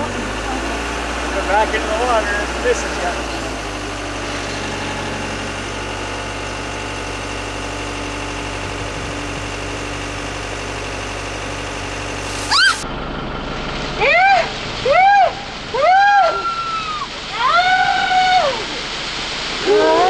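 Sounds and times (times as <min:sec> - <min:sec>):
diesel engine idling: 0:00.0 - 0:19.6
water splashing from bucket: 0:12.2 - 0:12.8
person screaming: 0:12.5 - 0:12.8, 0:15.0 - 0:18.6.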